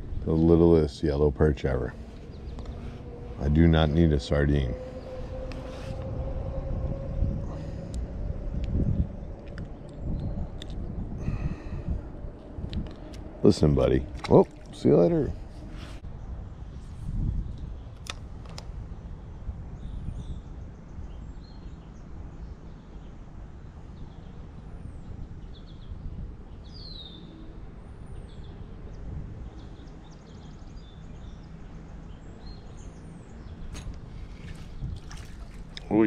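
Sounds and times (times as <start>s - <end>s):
low steady rumble: 0.0s - 36.0s
birds chirping and singing: 0.1s - 16.0s, 28.1s - 36.0s.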